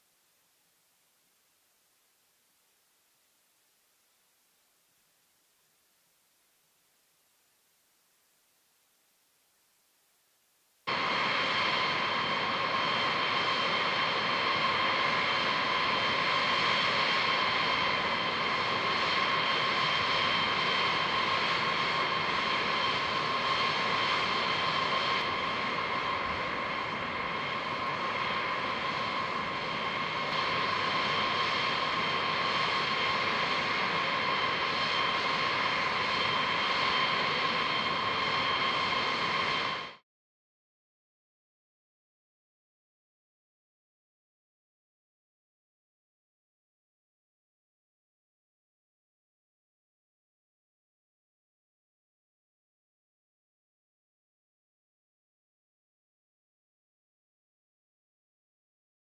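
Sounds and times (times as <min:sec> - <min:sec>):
high turbine whine: 0:10.9 - 0:40.0
jet engine running: 0:10.9 - 0:40.0.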